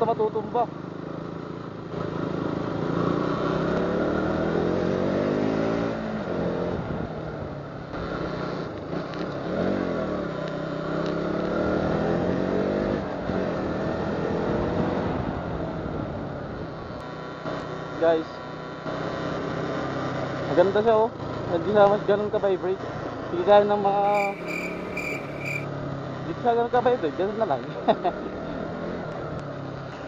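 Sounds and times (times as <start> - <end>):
motorcycle engine revving: 24.0 - 25.7.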